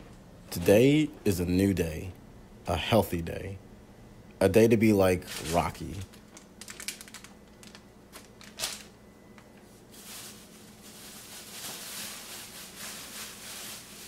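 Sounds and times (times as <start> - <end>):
faint steady hum: 0.0 - 14.0
plastic bags rustling: 5.2 - 9.0, 9.6 - 14.0.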